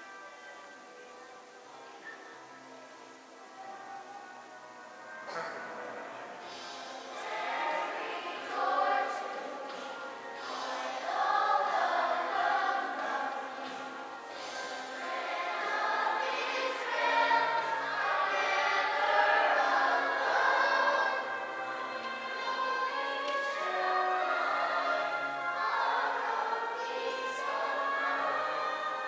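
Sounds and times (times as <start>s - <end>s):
young voices singing in chorus: 3.5s - 29.0s.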